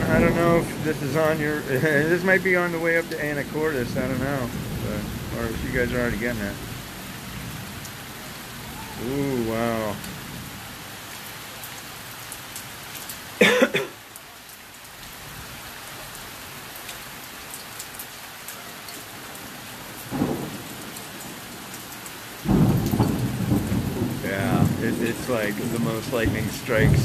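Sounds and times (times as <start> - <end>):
thunder rumbling: 0.0 - 10.6, 19.4 - 27.0
steady rain falling: 0.0 - 27.0.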